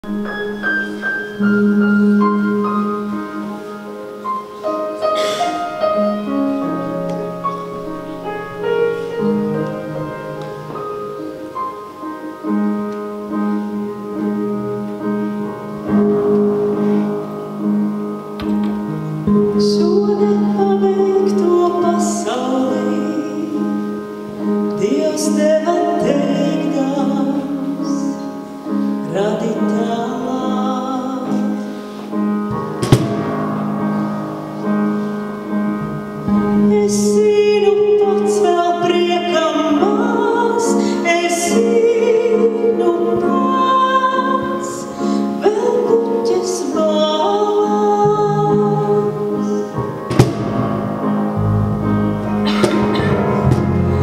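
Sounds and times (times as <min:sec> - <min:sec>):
piano: 0:00.0 - 0:54.0
woman singing: 0:19.3 - 0:28.3, 0:29.0 - 0:31.7, 0:36.3 - 0:49.6
electric bass guitar: 0:50.1 - 0:54.0.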